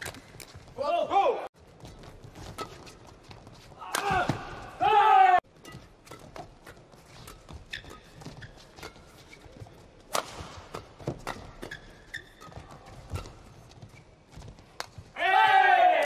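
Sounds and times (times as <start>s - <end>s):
rackets hitting shuttlecock: 3.8s - 4.6s, 10.1s - 13.6s.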